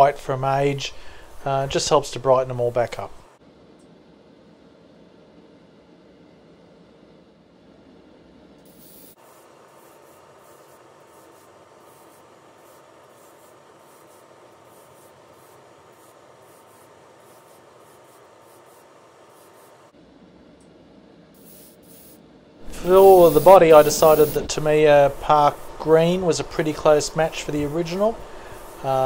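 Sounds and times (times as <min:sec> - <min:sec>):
airbrush spraying hiss: 0:00.7 - 0:01.7, 0:08.6 - 0:20.0, 0:21.4 - 0:29.0.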